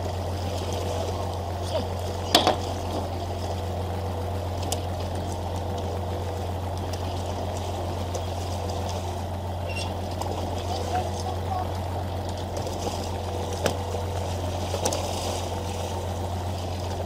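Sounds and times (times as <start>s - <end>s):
boat engine droning: 0.0s - 17.0s
water splashing against hull: 0.0s - 17.0s
sharp knocks: 2.3s - 3.1s.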